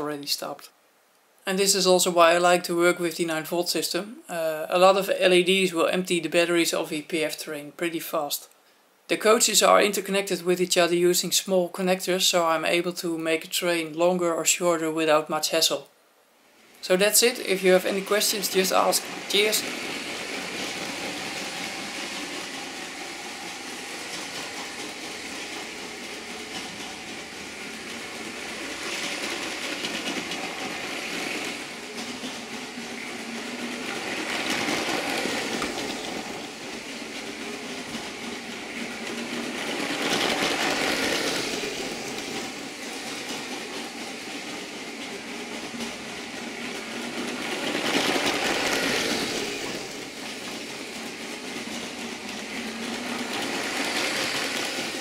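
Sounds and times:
train wheels rattling on track: 17.3 - 55.0
toy train motor whirring: 17.6 - 55.0.

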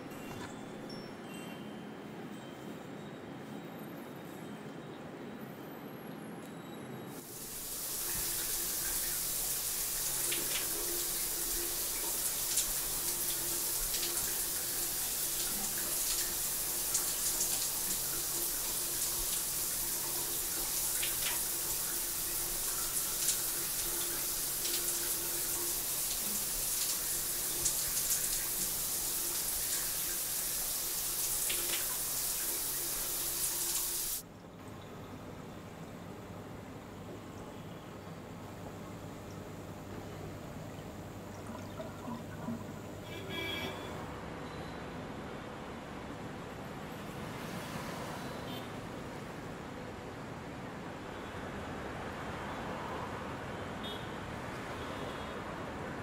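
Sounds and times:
shower spray hissing: 7.2 - 34.2.

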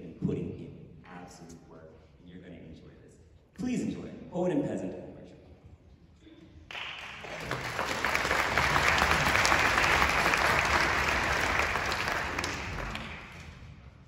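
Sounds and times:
audience applauding: 6.7 - 13.7.

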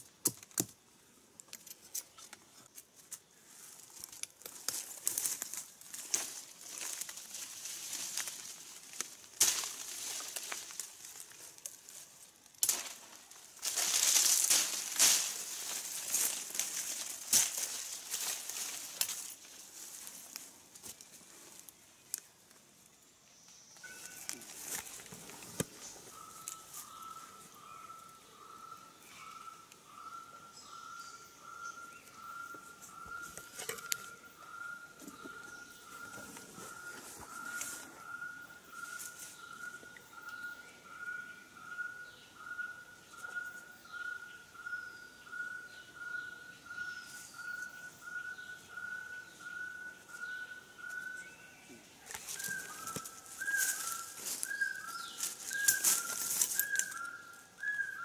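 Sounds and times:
sticks knocking and snapping: 0.2 - 0.8, 8.9 - 10.9, 12.6 - 19.2
dry leaves and twigs rustling: 1.4 - 22.6, 23.8 - 28.2, 31.4 - 40.4, 46.7 - 58.0.

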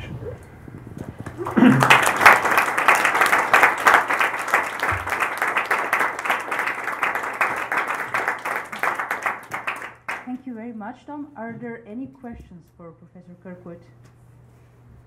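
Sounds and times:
audience clapping: 1.2 - 10.4.

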